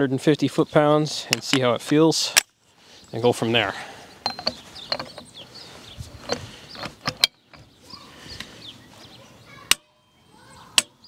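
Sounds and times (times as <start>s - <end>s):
tool handling noise: 4.2s - 8.5s.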